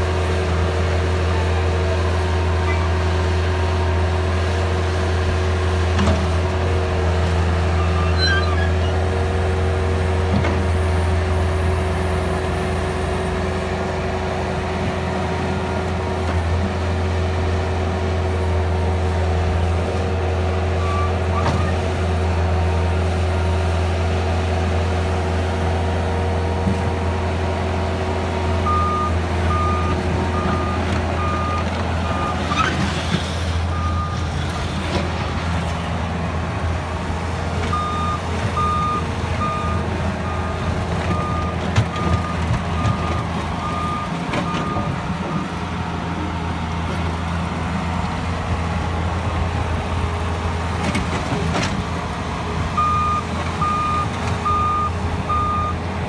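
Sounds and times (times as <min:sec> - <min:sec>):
diesel engine running: 0:00.0 - 0:56.0
backup alarm beeps: 0:28.7 - 0:32.4, 0:37.7 - 0:40.5, 0:52.8 - 0:55.8.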